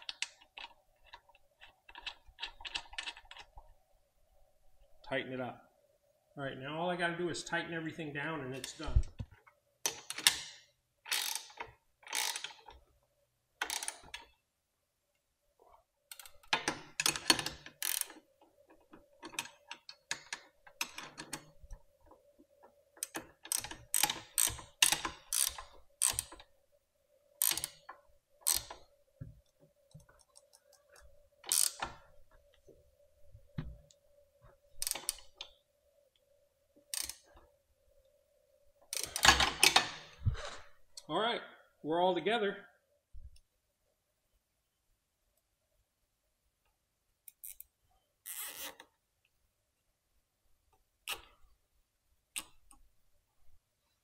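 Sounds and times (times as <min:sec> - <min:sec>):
ratchet wrench clicking: 0:11.1 - 0:11.5, 0:12.1 - 0:12.6, 0:17.8 - 0:18.2, 0:23.0 - 0:26.4, 0:27.4 - 0:27.8, 0:28.4 - 0:28.8, 0:31.5 - 0:31.8, 0:36.9 - 0:37.2.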